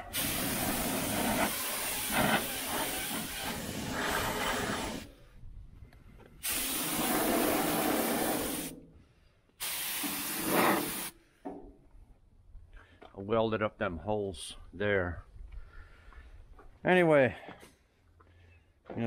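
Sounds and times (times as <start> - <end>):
air spray gun hissing: 0.0 - 5.1, 6.4 - 8.8, 9.6 - 11.2.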